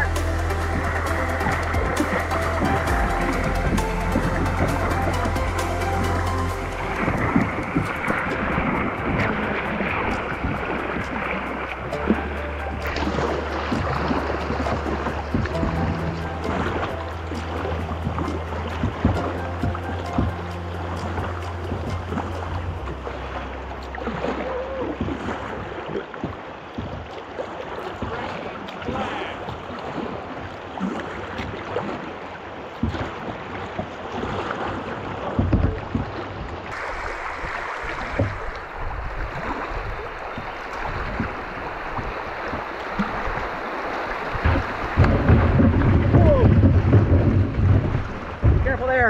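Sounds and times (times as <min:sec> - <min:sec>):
wave breaking over bow: 0:00.0 - 0:26.5, 0:36.7 - 0:49.0
wind rumble on microphone: 0:00.0 - 0:27.0, 0:35.3 - 0:49.0
creek water rushing: 0:00.0 - 0:49.0
water splashing: 0:00.0 - 0:49.0.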